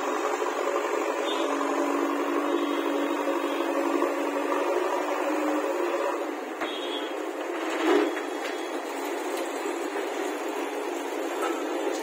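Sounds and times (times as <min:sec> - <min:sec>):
diesel engine running under load: 0:00.0 - 0:06.6.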